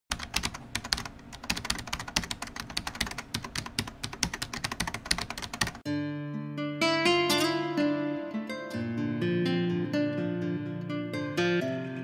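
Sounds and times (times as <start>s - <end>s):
keyboard typing clicks: 0.1s - 5.8s
plucked-string music: 5.9s - 12.0s.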